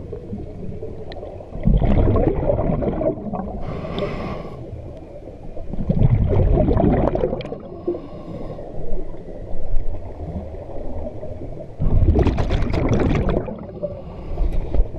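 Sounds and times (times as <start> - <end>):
scuba regulator bubbling exhalations: 1.5 - 4.4, 5.7 - 8.1, 11.8 - 14.2.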